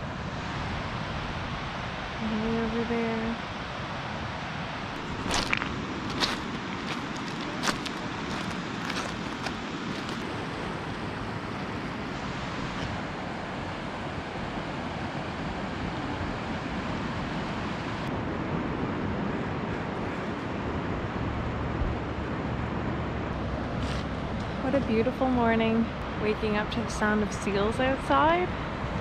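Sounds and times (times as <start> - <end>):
ocean surf breaking: 0.0 - 21.6.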